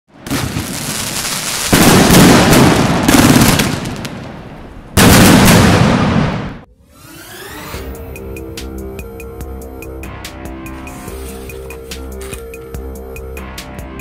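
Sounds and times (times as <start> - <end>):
fireworks explosions: 0.1 - 6.7.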